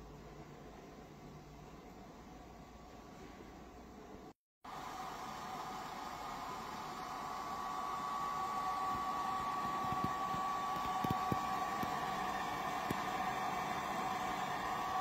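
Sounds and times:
fan-like hiss: 0.0s - 15.0s
machine whine with held tones: 4.7s - 15.0s.

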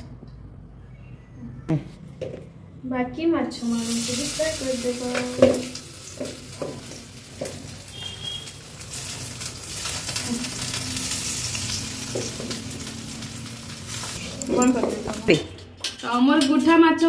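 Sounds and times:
fish sizzling in hot oil: 3.8s - 14.4s.

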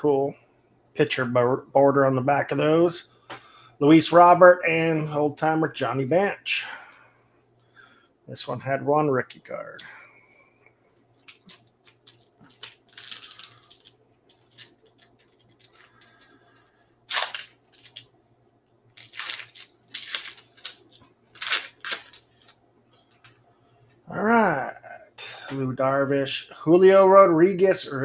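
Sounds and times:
foil wrapper tearing and crinkling: 11.2s - 16.3s, 17.1s - 18.1s, 19.0s - 22.6s.

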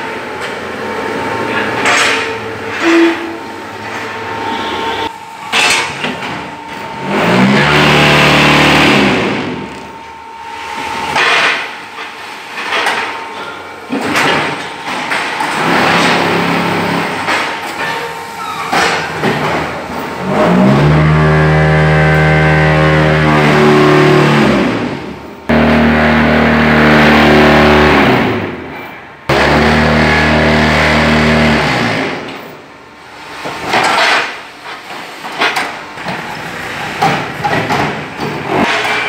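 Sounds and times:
machine motor hum: 6.6s - 10.2s.

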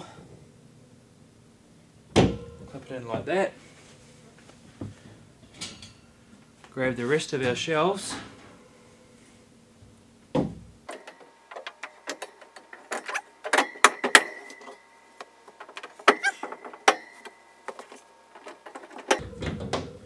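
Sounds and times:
shelves knocking and clinking: 2.1s - 2.8s, 10.4s - 14.8s, 15.5s - 20.0s.

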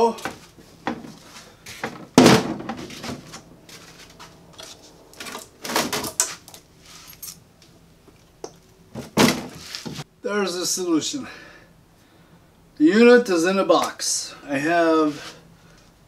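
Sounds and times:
heavy unit thumping down: 0.2s - 3.4s, 8.9s - 10.0s
plastic tote knocks and rattles: 1.8s - 3.3s.

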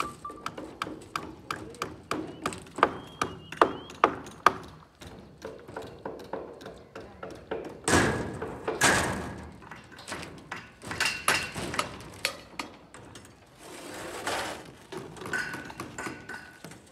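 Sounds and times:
plywood scraping: 13.5s - 14.9s.

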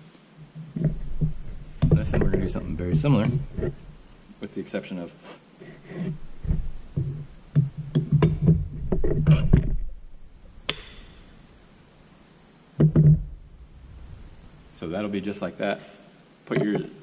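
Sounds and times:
sharp metallic click: 10.7s - 11.1s.

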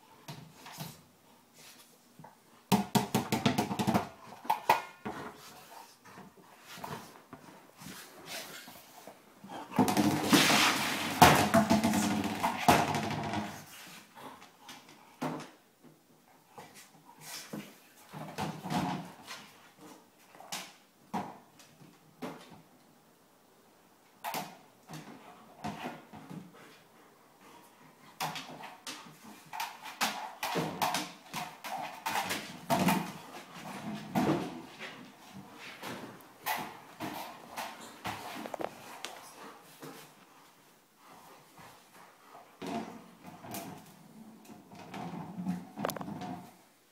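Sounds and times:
ball bumping and rolling on wood floor: 2.2s - 16.0s, 16.6s - 19.6s, 24.2s - 26.6s, 28.2s - 40.2s, 42.6s - 46.6s.

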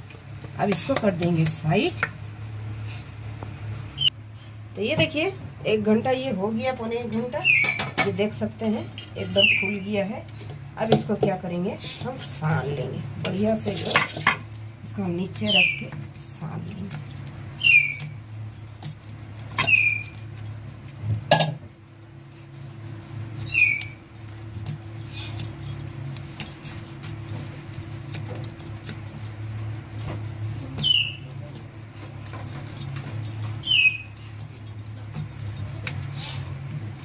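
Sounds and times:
steady low hum: 0.0s - 37.0s
bangles clinking: 22.2s - 37.0s
high falling animal chirp: 30.8s - 31.3s.

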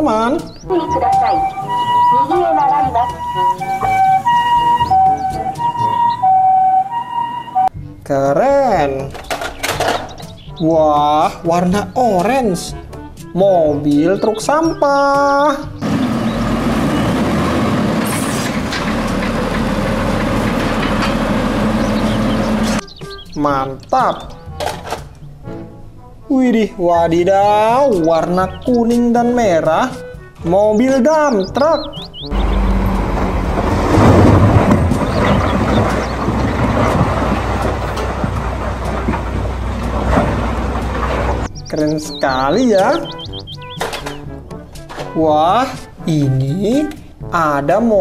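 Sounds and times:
garbage truck engine hum: 0.4s - 7.7s, 15.8s - 22.9s, 31.9s - 41.7s
heavy diesel machinery running: 3.0s - 7.6s, 15.8s - 22.8s, 32.1s - 41.5s
knocks: 32.4s - 41.5s.

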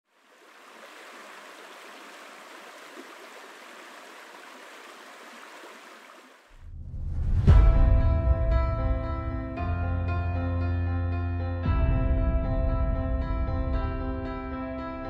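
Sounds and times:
water lapping on stony shore: 0.1s - 6.5s.

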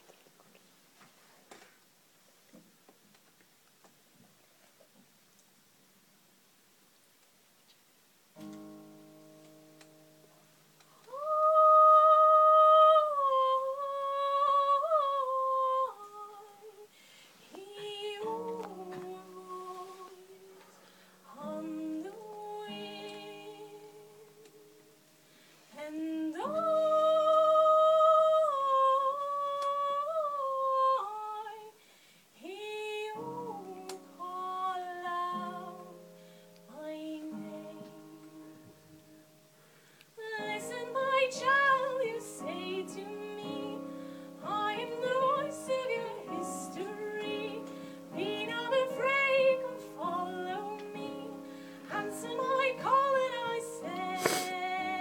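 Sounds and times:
woman singing into a microphone: 11.0s - 24.8s, 25.7s - 31.8s, 32.4s - 38.8s, 40.2s - 55.0s.

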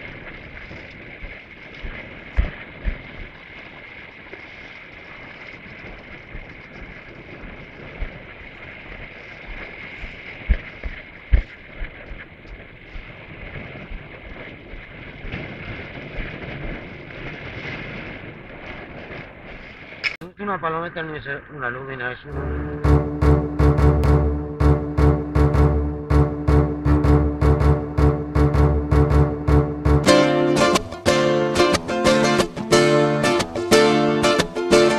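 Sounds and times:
surf washing against rocks: 0.0s - 20.2s
wind buffeting microphone: 0.0s - 22.8s
low gust thumps: 22.3s - 34.7s.

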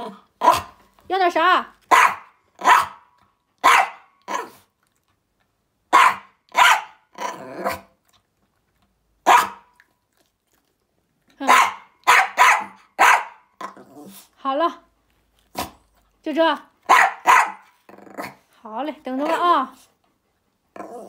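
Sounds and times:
small dog barking: 0.4s - 0.8s, 1.9s - 4.6s, 5.9s - 7.0s, 9.2s - 9.7s, 11.4s - 13.4s, 16.9s - 17.8s.

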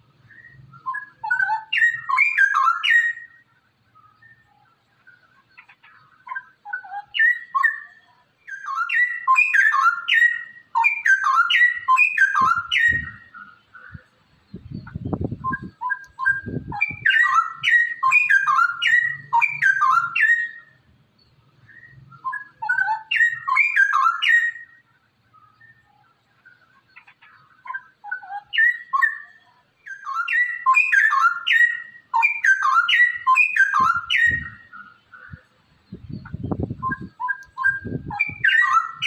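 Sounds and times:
bird singing bubbling whistles: 0.2s - 3.4s, 6.3s - 13.5s, 14.5s - 20.8s, 21.6s - 24.8s, 27.7s - 39.0s.

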